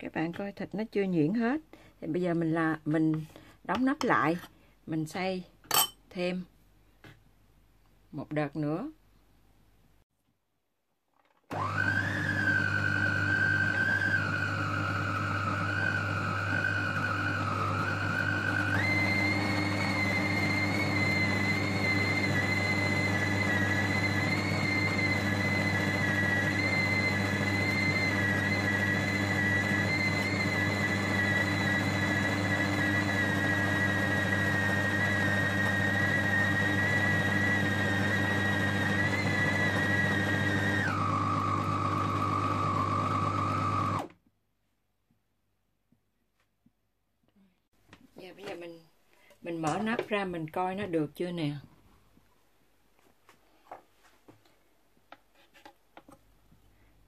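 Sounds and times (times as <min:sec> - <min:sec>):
food processor motor whining: 0:11.5 - 0:44.2.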